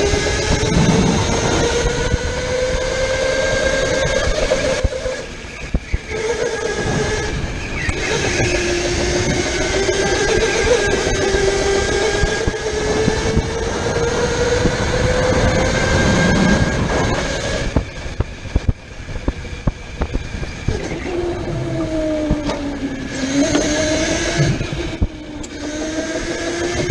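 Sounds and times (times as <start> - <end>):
chassis rattle: 0.0 - 26.9
electric motor whining: 0.0 - 26.9.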